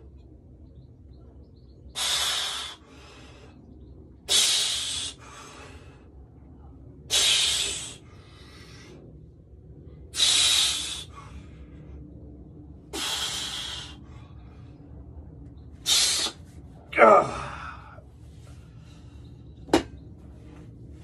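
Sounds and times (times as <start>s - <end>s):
man exhaling forcefully: 2.0s - 3.1s, 4.3s - 5.8s, 7.1s - 8.8s, 10.2s - 11.3s, 12.9s - 14.0s, 15.8s - 16.4s
man grunting: 16.9s - 17.9s.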